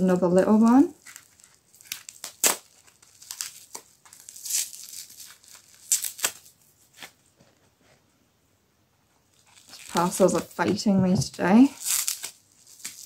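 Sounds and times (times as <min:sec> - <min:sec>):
paper wrapping crinkling and tearing: 0:00.5 - 0:07.2, 0:09.3 - 0:10.6, 0:11.4 - 0:13.0.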